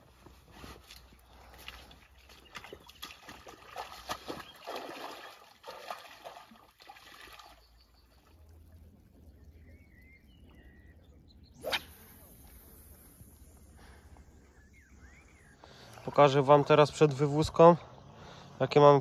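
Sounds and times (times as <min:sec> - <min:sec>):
wading through splashing water: 0:00.0 - 0:10.4.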